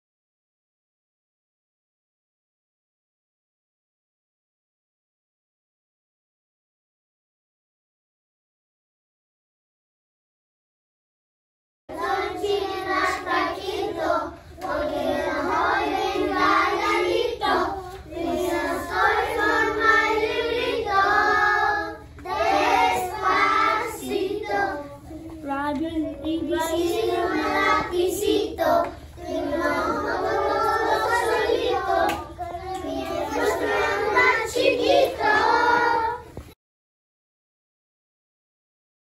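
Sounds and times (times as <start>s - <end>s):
children singing together: 11.9s - 25.4s, 26.5s - 36.5s
hand clapping: 31.3s - 33.8s.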